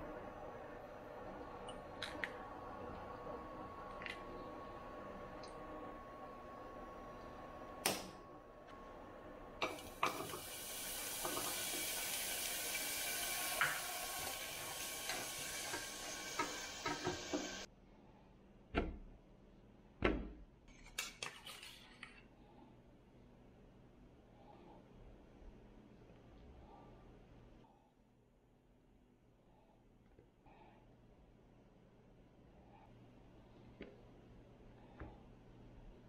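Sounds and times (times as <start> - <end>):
eggs sizzling in a pan: 8.8 - 17.7.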